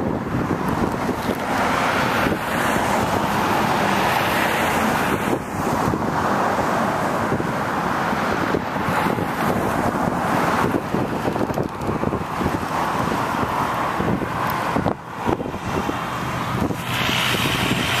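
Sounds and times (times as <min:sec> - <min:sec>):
cars passing on road: 0:00.0 - 0:18.0
truck engine: 0:00.0 - 0:18.0
wind buffeting microphone: 0:00.0 - 0:18.0.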